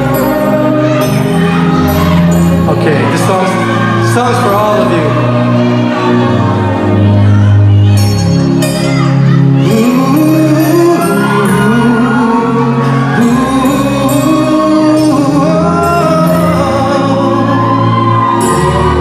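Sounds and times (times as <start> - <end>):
instrumental backing music: 0.0 - 19.0
man singing into microphone: 9.6 - 18.6.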